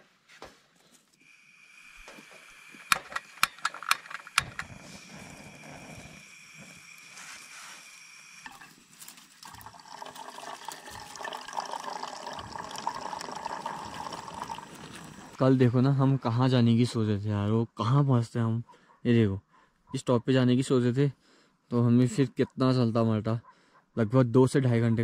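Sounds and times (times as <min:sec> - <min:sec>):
water trickling and splashing: 0:09.0 - 0:15.4.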